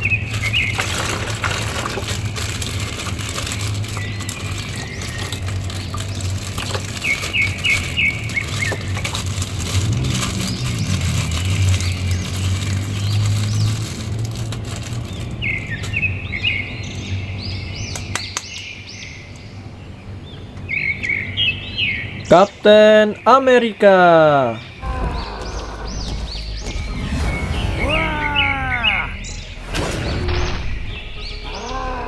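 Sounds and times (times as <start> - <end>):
plastic bag crinkling: 0.0 - 15.7
small birds chirping: 0.0 - 32.0.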